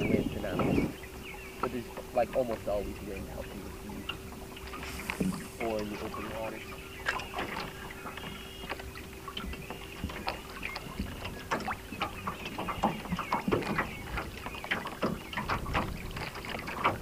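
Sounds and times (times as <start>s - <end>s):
faint steady hum: 0.0s - 12.1s
waves lapping against boat hull: 0.0s - 17.0s.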